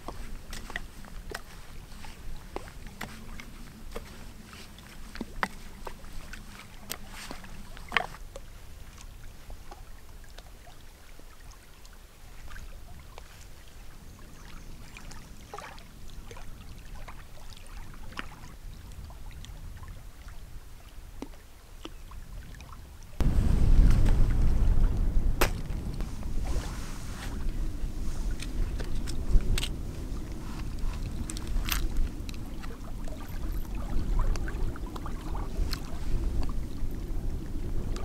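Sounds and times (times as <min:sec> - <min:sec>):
wind rumbling on microphone: 0:12.3 - 0:38.0.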